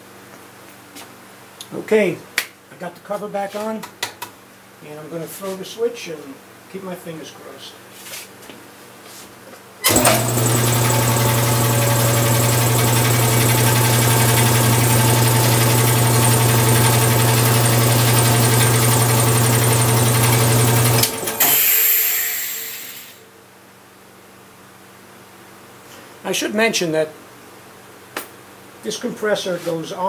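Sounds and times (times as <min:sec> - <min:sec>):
air compressor motor humming: 0:09.8 - 0:23.2.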